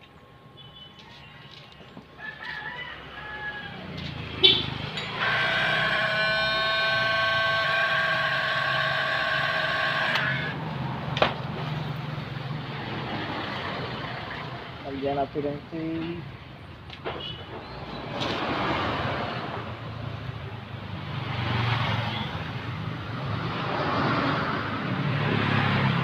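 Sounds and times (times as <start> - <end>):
heat gun whine: 5.1 - 10.6.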